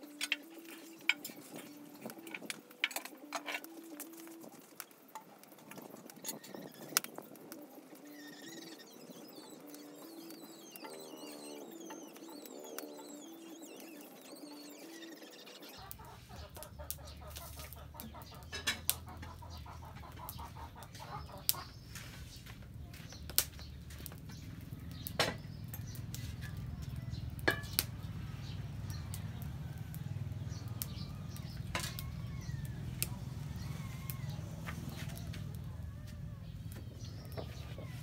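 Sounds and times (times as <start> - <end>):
faint bird calls: 0.0 - 38.0
wood fire crackling: 0.0 - 38.0
metal pot clattering: 27.4 - 27.8.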